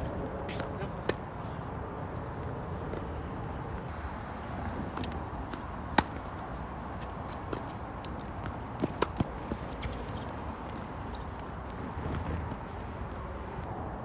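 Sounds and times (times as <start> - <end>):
tennis racket striking ball: 5.5 - 6.3.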